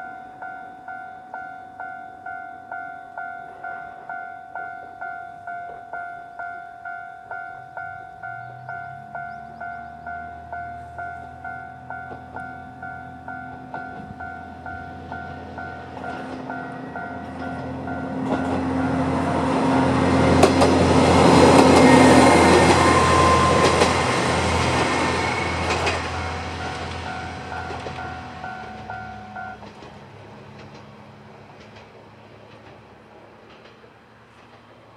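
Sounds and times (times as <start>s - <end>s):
crossing bell two-note alarm: 0.0s - 19.4s, 21.9s - 29.6s
diesel railcar rumbling past: 6.8s - 34.9s
wheels clacking over rail joints: 8.2s - 34.9s.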